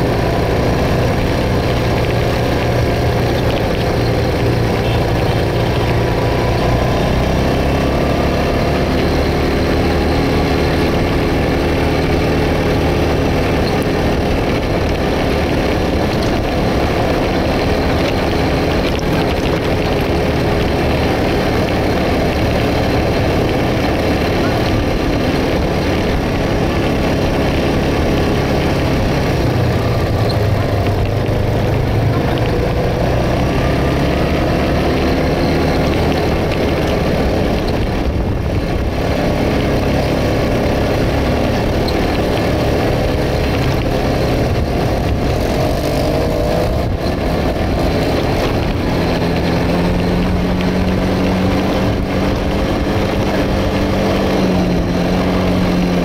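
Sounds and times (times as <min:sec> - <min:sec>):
quad bike engine running: 0:00.0 - 0:56.0.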